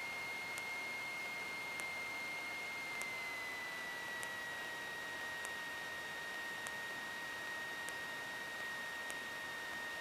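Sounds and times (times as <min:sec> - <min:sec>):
high electrical whine: 0:00.0 - 0:10.0
faint ticks: 0:02.9 - 0:03.1.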